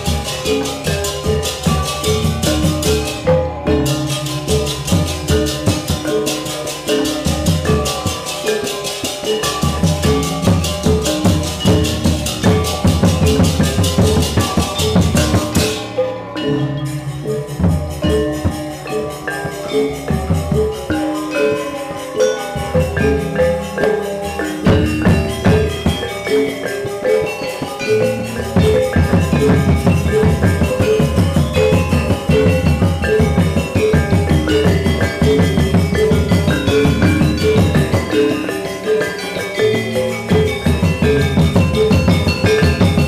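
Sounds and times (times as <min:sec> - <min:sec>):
bronze metallophones and gongs: 0:00.0 - 0:43.0
hand drums: 0:00.0 - 0:43.0
two-headed drum: 0:09.5 - 0:15.9, 0:24.6 - 0:26.2, 0:28.4 - 0:38.6, 0:40.2 - 0:43.0.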